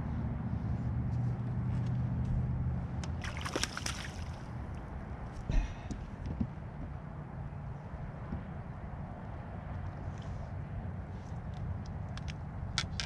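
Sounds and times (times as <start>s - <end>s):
low steady hum: 0.0s - 8.1s
fish splashing at surface: 3.2s - 4.6s.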